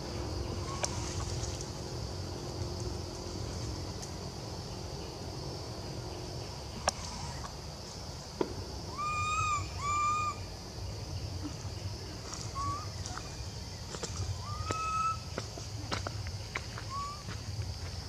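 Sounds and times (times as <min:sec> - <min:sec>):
high insect hiss: 0:00.0 - 0:18.0
young monkey coo calls: 0:00.6 - 0:01.2, 0:08.9 - 0:10.5, 0:12.3 - 0:13.3, 0:14.4 - 0:15.4.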